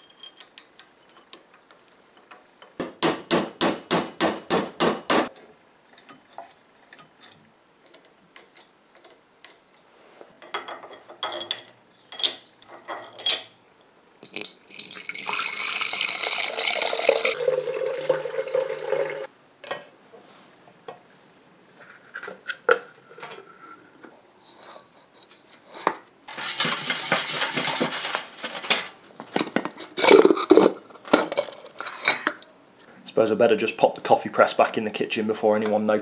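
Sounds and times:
liquid sloshing in glass: 0:14.7 - 0:19.3.

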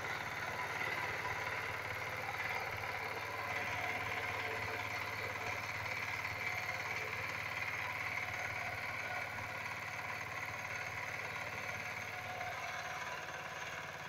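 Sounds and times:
power tiller diesel engine chugging: 0:00.0 - 0:14.0.

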